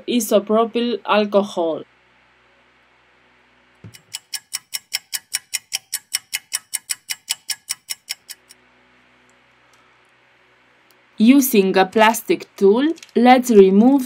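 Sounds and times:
clock ticking: 3.9s - 8.6s.

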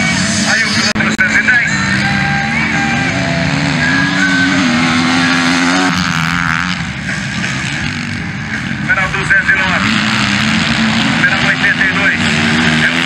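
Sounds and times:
distant engine: 0.0s - 13.0s
motocross bike engine revving: 0.0s - 13.0s.

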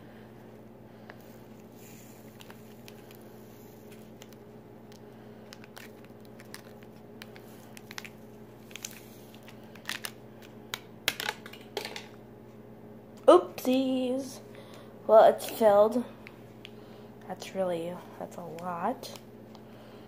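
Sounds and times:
paper packets crinkling: 2.1s - 11.7s.

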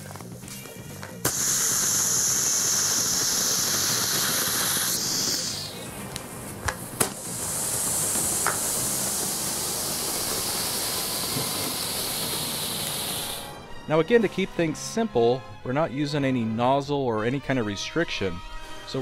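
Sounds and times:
rocket fuel burning hiss: 0.0s - 13.6s
sharp pops: 1.2s - 13.5s.

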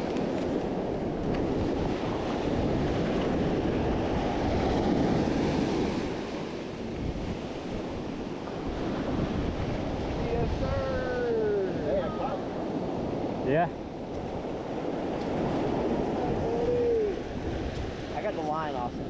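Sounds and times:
ocean surf breaking: 0.0s - 19.0s
wind buffeting microphone: 0.0s - 19.0s.

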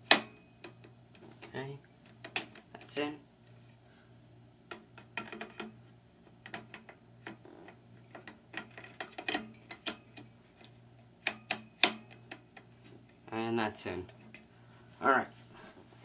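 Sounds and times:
fluorescent tubes clicking into holders: 8.0s - 12.7s.

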